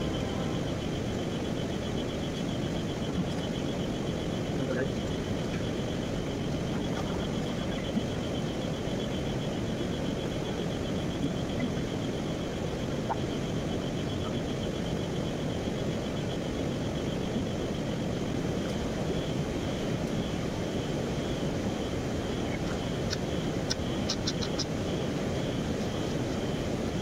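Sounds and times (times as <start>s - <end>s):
high fast pulsed chirping: 22.3s - 24.8s.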